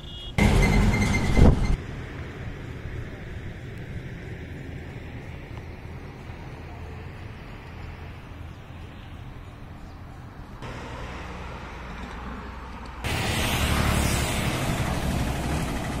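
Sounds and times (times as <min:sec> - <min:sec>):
loud hissy noise: 0:13.1 - 0:15.9.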